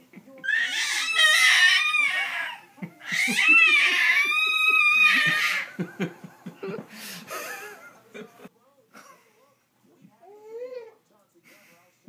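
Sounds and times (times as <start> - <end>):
baby squealing: 0.4 - 5.7
man chuckling: 2.8 - 9.2.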